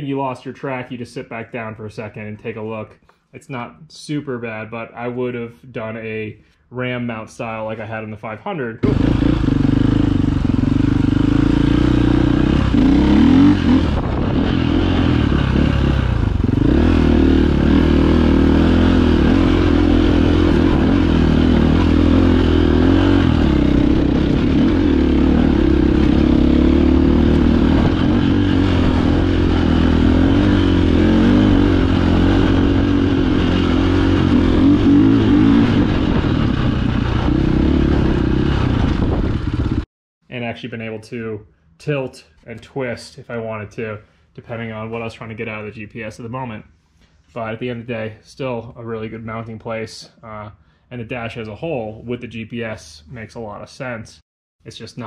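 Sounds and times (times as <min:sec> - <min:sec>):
motorcycle engine revving: 0:08.8 - 0:39.9.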